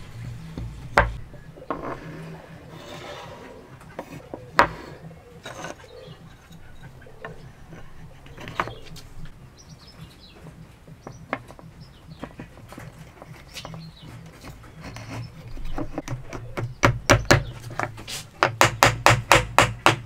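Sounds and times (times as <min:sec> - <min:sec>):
wooden blocks knocking on a workbench: 0:01.0 - 0:02.0, 0:04.0 - 0:05.8, 0:10.9 - 0:13.8.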